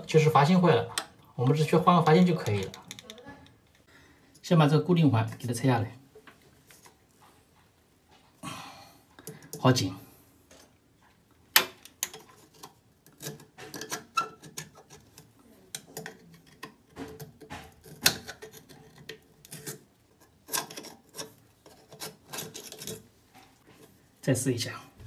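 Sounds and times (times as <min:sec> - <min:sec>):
screwdriver scraping metal ring: 0:17.8 - 0:23.1.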